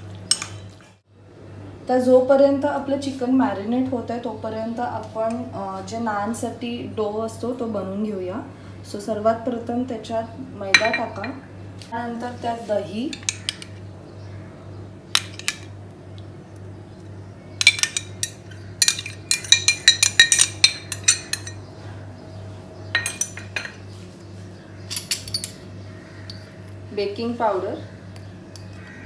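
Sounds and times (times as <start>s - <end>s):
steady low hum: 0.0s - 29.0s
metal spoon tapping glass jug: 17.6s - 21.6s.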